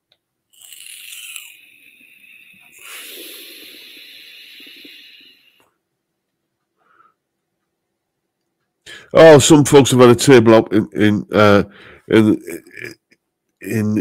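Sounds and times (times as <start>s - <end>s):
breath hissing through e-cigarette: 0.6s - 5.6s.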